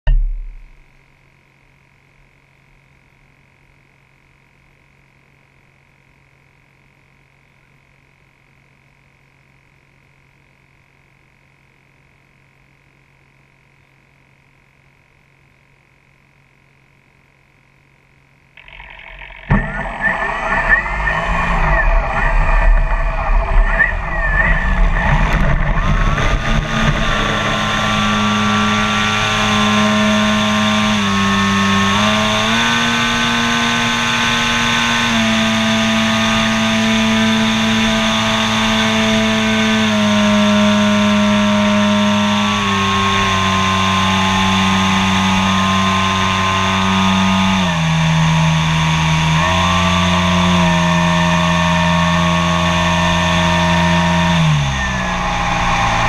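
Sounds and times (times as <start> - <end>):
model airplane engine: 18.6 - 56.0.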